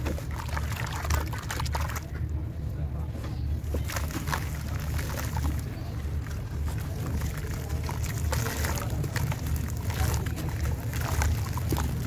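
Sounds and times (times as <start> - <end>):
hands sloshing wet cement: 0.0 - 2.2, 3.6 - 12.0
steady low rumble: 0.0 - 12.0
gritty crackles of crumbling slab: 3.6 - 12.0.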